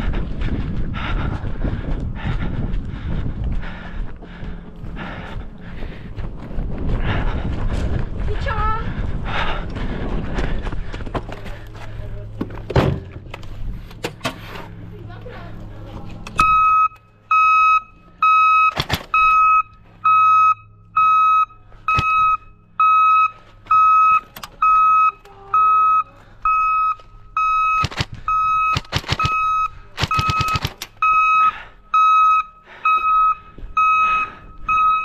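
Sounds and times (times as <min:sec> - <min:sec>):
high electronic beeps: 0:16.3 - 0:35.0
airsoft gun shots: 0:27.8 - 0:30.9.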